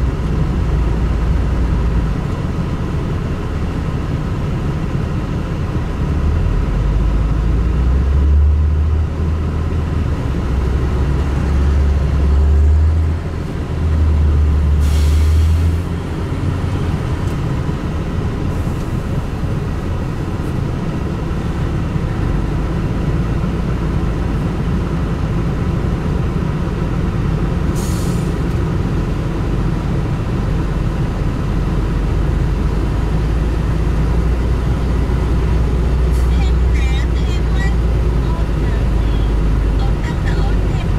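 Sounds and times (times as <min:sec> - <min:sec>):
excavator diesel engine rumbling: 0:00.0 - 0:40.9
short hisses: 0:14.8 - 0:15.8, 0:27.8 - 0:28.3.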